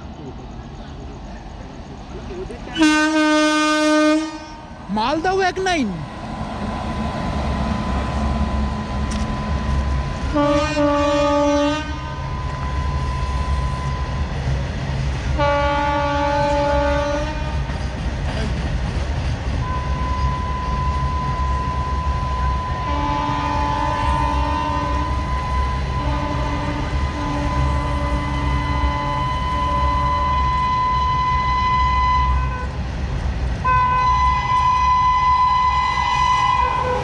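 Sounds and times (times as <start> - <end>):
train rumble: 0.0 - 37.0
locomotive horn blasts: 2.8 - 4.8, 8.4 - 14.0, 15.4 - 17.6, 19.6 - 32.8, 33.6 - 37.0.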